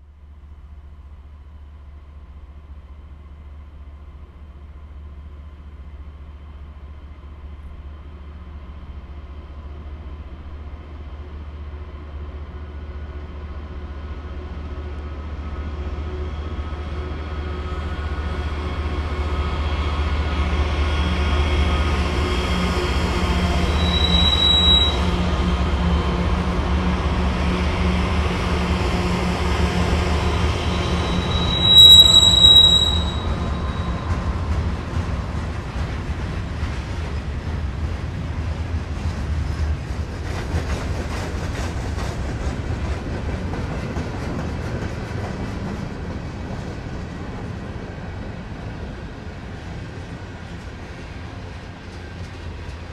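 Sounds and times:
high wheel squeal: 0:23.6 - 0:25.2, 0:30.5 - 0:34.1
train cars rolling: 0:29.6 - 0:47.7.

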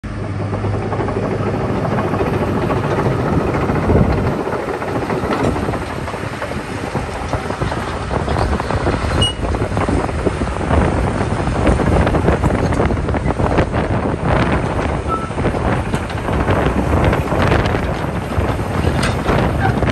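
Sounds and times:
excavator diesel engine: 0:00.0 - 0:19.9
steel tracks clattering: 0:00.1 - 0:19.9.

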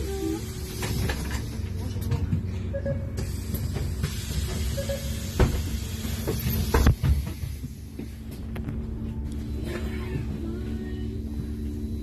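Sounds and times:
air hiss of bus doors: 0:03.2 - 0:08.2.

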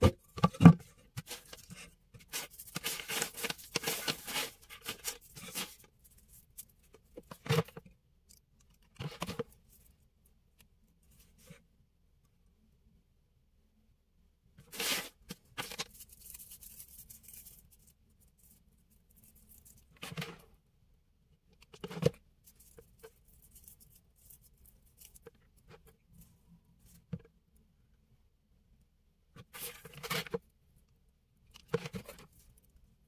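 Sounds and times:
raffia rustling and crinkling: 0:01.1 - 0:07.1.

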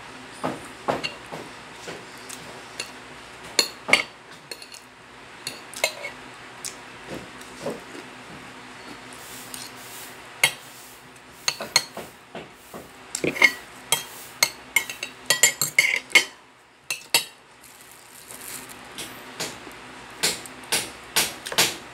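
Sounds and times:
cutlery clinking on a plate: 0:03.6 - 0:04.8, 0:05.5 - 0:06.2, 0:13.2 - 0:17.4.

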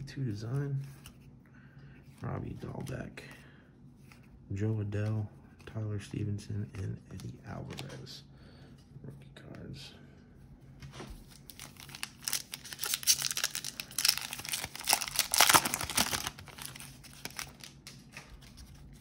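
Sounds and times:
foil wrapper tearing and crinkling: 0:11.4 - 0:18.5.

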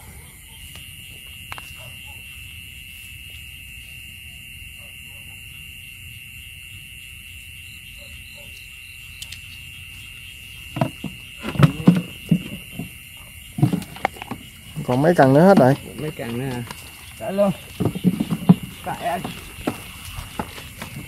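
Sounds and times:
high-pitched insect chorus: 0:00.0 - 0:21.0
loud low animal calls: 0:10.8 - 0:16.1, 0:17.1 - 0:21.0.

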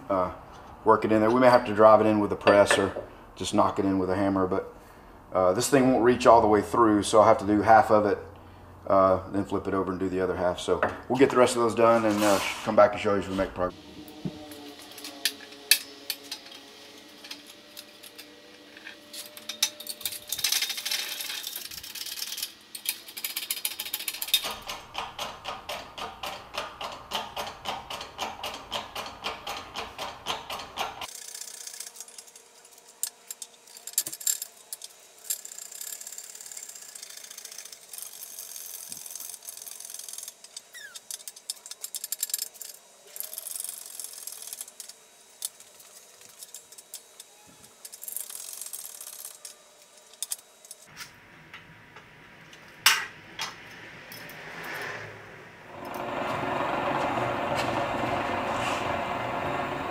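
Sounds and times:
machine mechanism clicking and rattling: 0:19.2 - 0:50.9.

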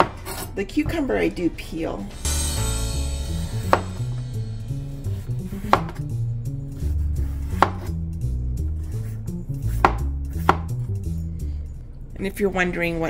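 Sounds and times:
boogie-woogie music: 0:02.2 - 0:11.4.

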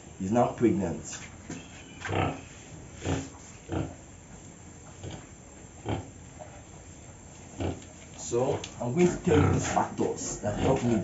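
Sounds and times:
pig grunting: 0:02.0 - 0:04.0, 0:05.0 - 0:06.2, 0:07.6 - 0:07.8, 0:08.5 - 0:11.0.

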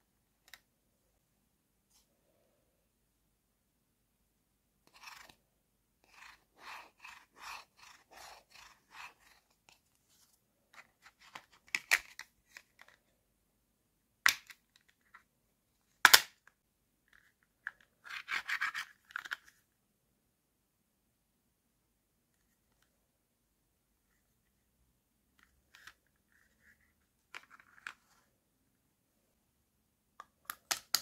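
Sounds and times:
rubbing on plastic toy food: 0:04.8 - 0:05.4, 0:06.0 - 0:11.7, 0:17.2 - 0:19.5.

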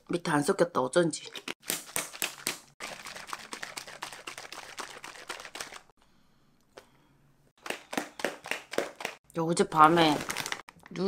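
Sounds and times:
bottle shaking and rattling: 0:01.2 - 0:05.9.

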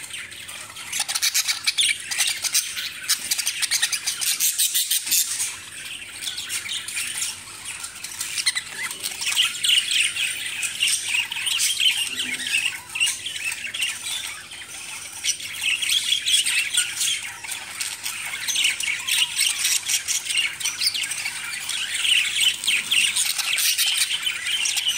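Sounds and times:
budgerigars chattering: 0:00.0 - 0:24.9.

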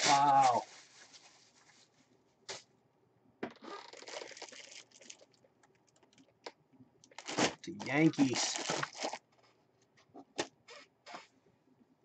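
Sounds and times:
plastic bag crinkling: 0:00.0 - 0:01.9, 0:03.8 - 0:05.3, 0:07.1 - 0:09.4.

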